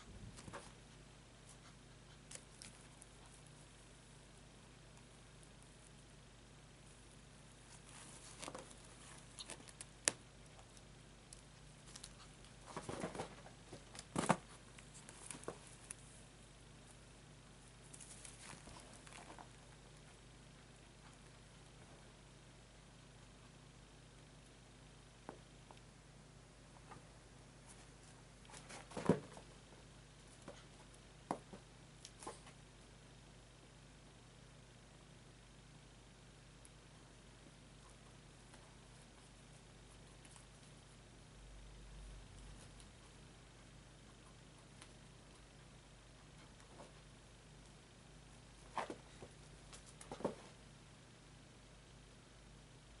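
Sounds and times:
rustling: 0.0 - 22.2, 36.6 - 41.4, 42.0 - 50.8.

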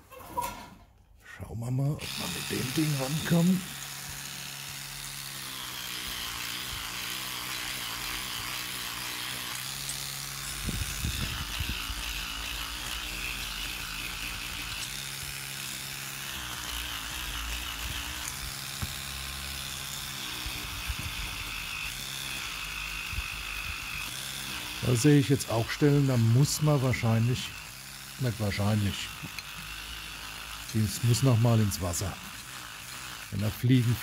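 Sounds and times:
electric toothbrush humming: 1.7 - 34.0.

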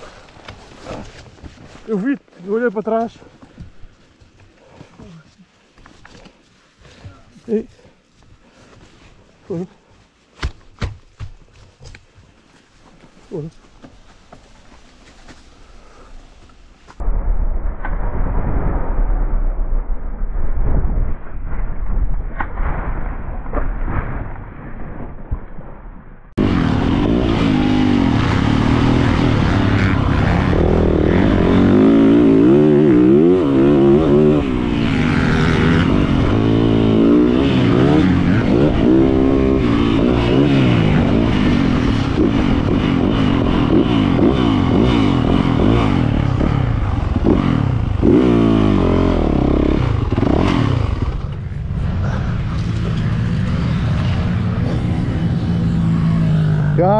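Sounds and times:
motorcycle engine revving: 26.4 - 56.9.

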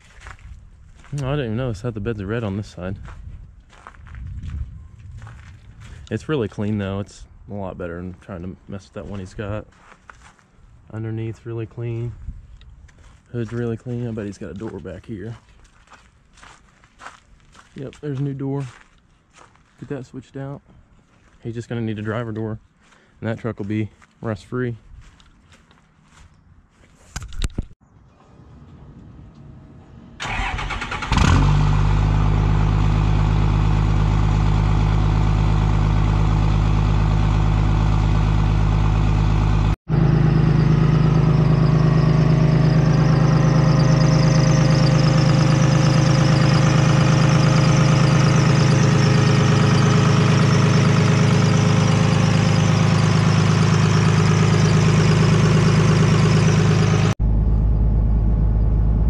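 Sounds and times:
diesel engine cranking: 30.2 - 59.0
diesel engine idling: 30.2 - 59.0.

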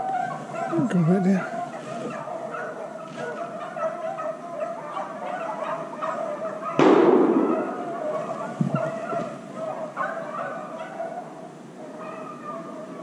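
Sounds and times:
dogs baying in chorus: 0.0 - 13.0
sudden loud bang: 6.8 - 8.0.

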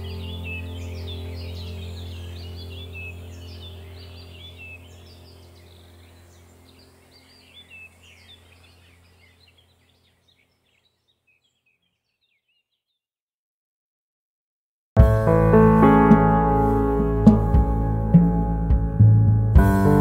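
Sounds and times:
low steady drone: 0.0 - 9.7, 15.0 - 20.0
birds chirping: 0.0 - 13.0.

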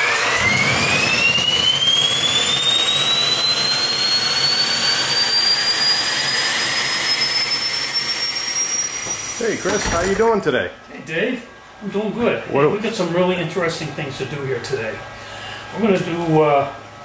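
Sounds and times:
turbine engine whine: 0.0 - 17.0.

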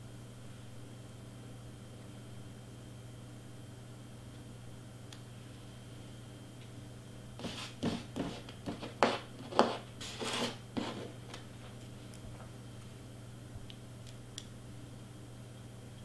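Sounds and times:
steady low hum: 0.0 - 16.0
rustling and scraping of supplies: 7.4 - 11.8.

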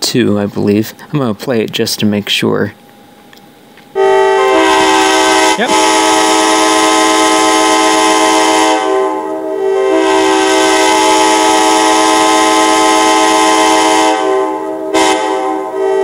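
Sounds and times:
locomotive air horn blasts: 4.0 - 16.0.

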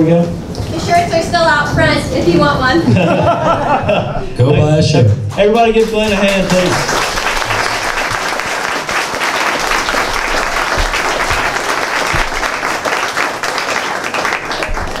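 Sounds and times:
audience applauding: 5.3 - 15.0.

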